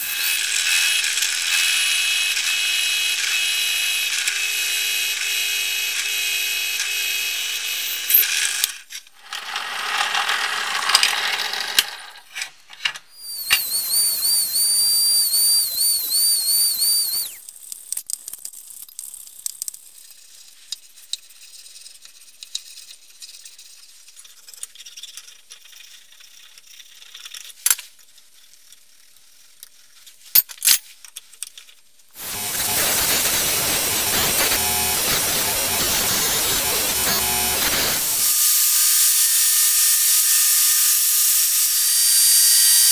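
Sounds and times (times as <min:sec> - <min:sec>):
drill press boring metal: 0:00.0 - 0:08.3, 0:13.2 - 0:17.4, 0:32.2 - 0:42.9
belt grinder running: 0:00.0 - 0:08.6, 0:13.2 - 0:17.4, 0:32.2 - 0:42.9
wavering high squeal: 0:13.2 - 0:17.4.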